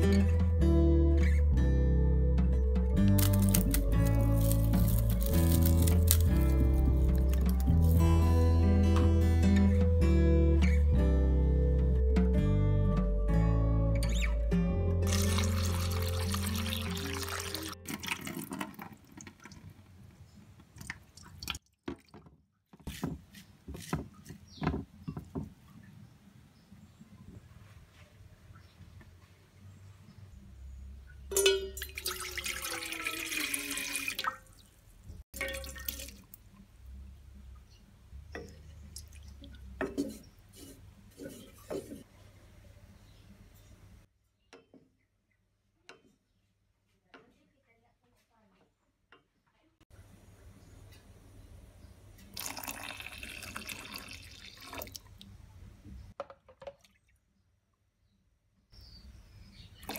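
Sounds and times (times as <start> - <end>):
milk pouring and splashing: 15.0 - 20.0, 31.8 - 34.6, 35.4 - 36.4, 52.3 - 55.2
tap water running into bowl: 15.1 - 19.6, 31.7 - 34.4, 52.3 - 55.1
splash of water into pot: 31.3 - 34.6, 35.4 - 36.3.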